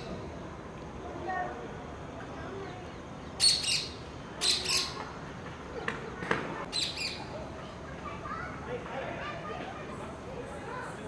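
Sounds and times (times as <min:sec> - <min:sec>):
parakeet screeching: 0:03.4 - 0:05.0.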